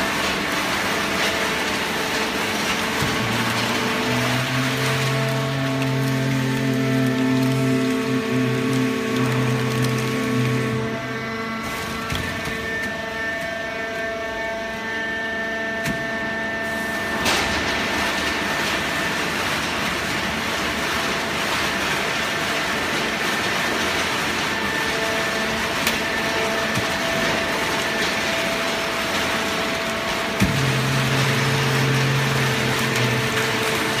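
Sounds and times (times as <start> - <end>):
baler machine hum: 0.0 - 15.8.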